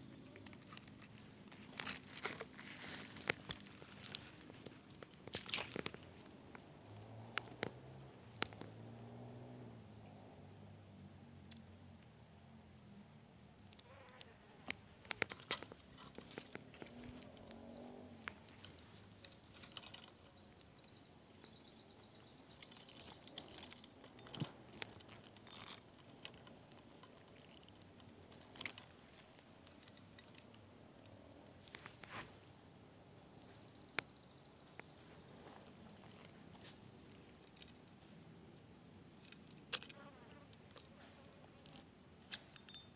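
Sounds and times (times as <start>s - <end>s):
fishing tackle clicking and rattling: 0.0s - 8.7s, 15.0s - 20.9s, 22.2s - 31.2s, 37.1s - 38.0s, 39.2s - 40.9s, 41.5s - 42.9s.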